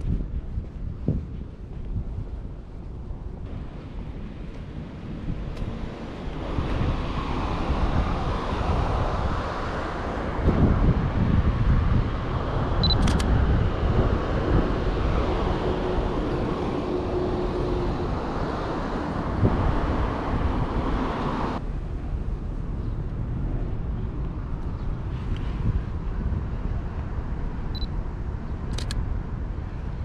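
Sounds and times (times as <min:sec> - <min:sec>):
street traffic: 0:00.0 - 0:30.0
wind: 0:00.0 - 0:30.0
camera focus beep: 0:12.8 - 0:13.3
camera shutter clicks: 0:12.9 - 0:13.3.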